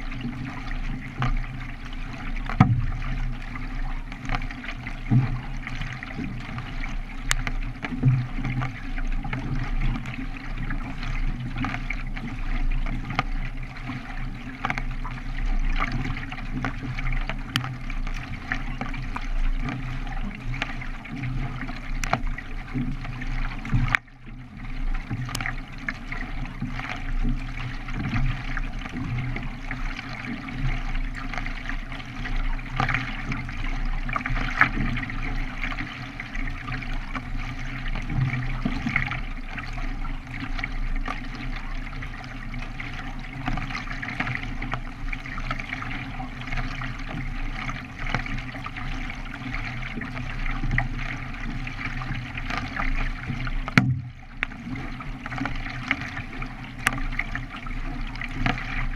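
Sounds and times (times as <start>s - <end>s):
water splashing from kayak paddling: 0.0s - 58.9s.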